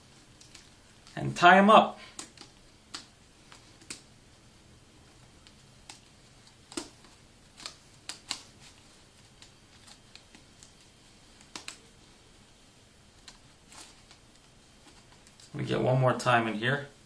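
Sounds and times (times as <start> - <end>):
rubber band twisting fabric: 0.0 - 15.6
sharp little clicks and rustles: 0.2 - 1.2.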